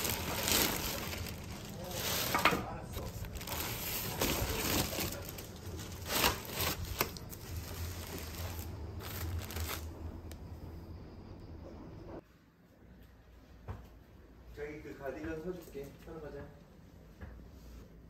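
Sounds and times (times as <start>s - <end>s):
plastic bags crinkling: 0.0s - 10.4s.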